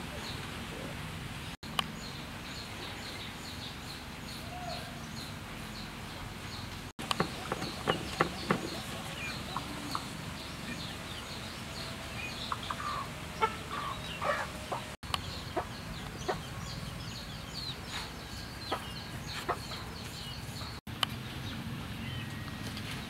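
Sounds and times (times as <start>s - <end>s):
chickens clucking: 7.0s - 16.8s, 17.6s - 20.8s.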